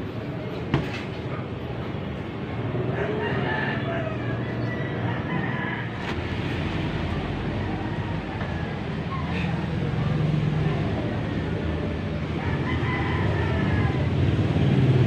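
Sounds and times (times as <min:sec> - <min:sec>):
rooster crowing: 0:02.9 - 0:06.1, 0:12.4 - 0:14.3.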